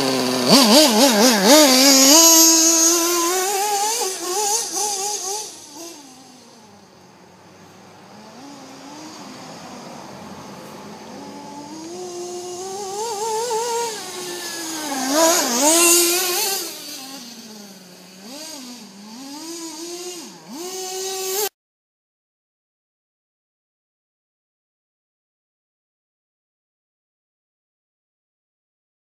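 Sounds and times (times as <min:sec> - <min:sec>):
small two-stroke engine revving: 0:00.0 - 0:21.6.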